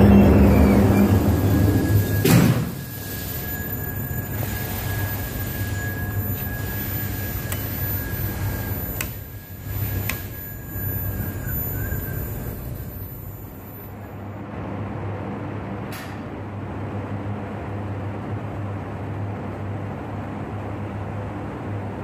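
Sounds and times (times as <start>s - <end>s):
thin steady whine: 0.0s - 15.5s
ventilation fans humming: 0.0s - 22.0s.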